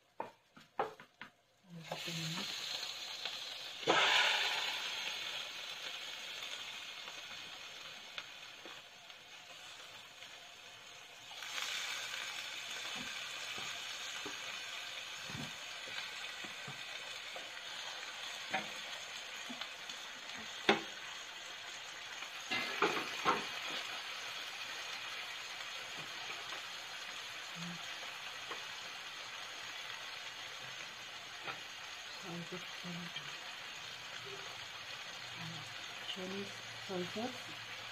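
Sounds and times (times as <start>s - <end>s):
chicken sizzling in frying pan: 0.1s - 37.9s.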